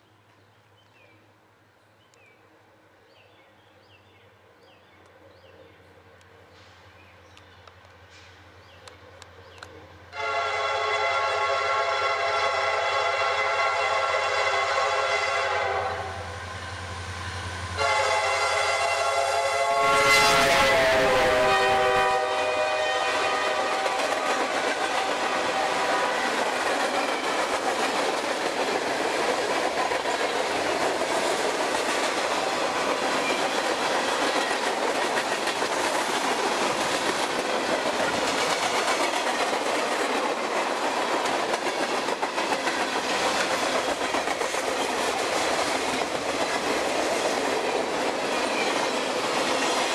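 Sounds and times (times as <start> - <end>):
train horn: 10.1 - 16.6, 17.5 - 26.4
train wheels clattering on rails: 23.0 - 49.9.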